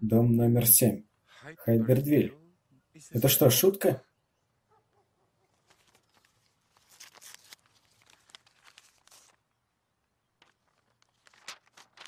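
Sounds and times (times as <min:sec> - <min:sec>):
paper envelope tearing: 0:05.7 - 0:09.4, 0:10.7 - 0:12.0.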